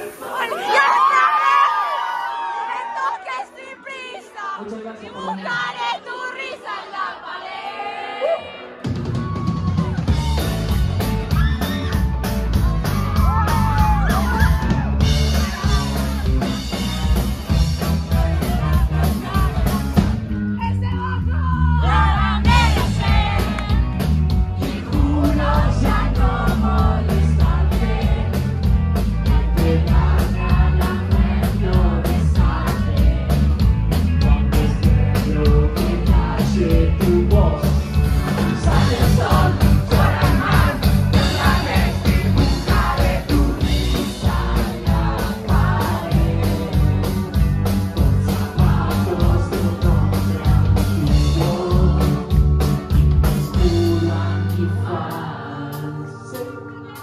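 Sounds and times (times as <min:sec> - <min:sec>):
lead vocals singing: 0:00.0 - 0:08.9, 0:13.1 - 0:20.2, 0:21.3 - 0:52.6, 0:53.4 - 0:57.0
steady drum beat: 0:08.8 - 0:20.8, 0:21.8 - 0:54.3
bass guitar: 0:08.8 - 0:57.0.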